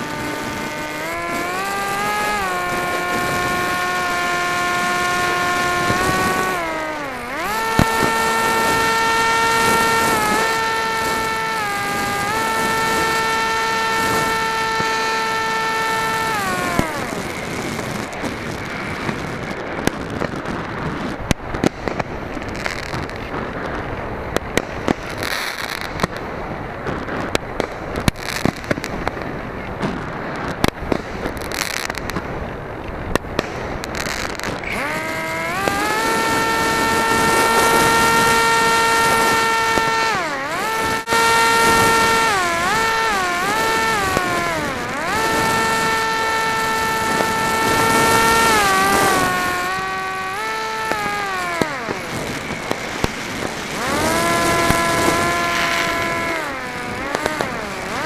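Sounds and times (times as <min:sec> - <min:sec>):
model aircraft motor whine: 0:00.0 - 0:20.4, 0:33.8 - 0:58.0
firework pops and crackles: 0:00.0 - 0:58.0.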